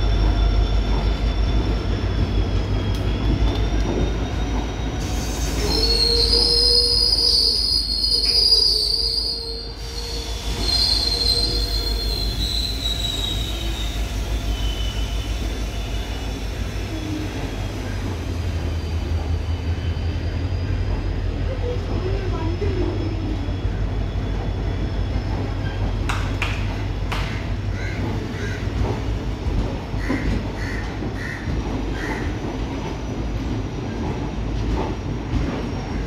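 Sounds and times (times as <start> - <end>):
high-pitched wheel squeal: 0.0 - 18.1
train wheels rumbling on rails: 0.0 - 36.0.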